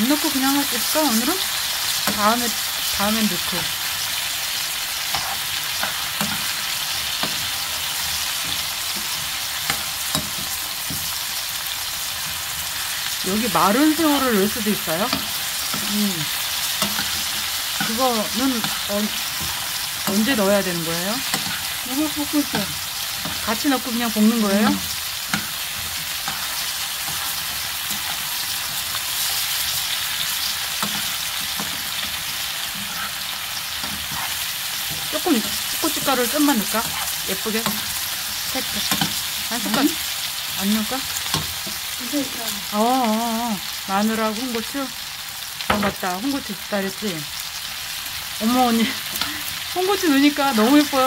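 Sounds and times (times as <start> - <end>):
squash sizzling in frying pan: 0.0 - 51.0
metal spoon scraping pan: 13.0 - 39.9.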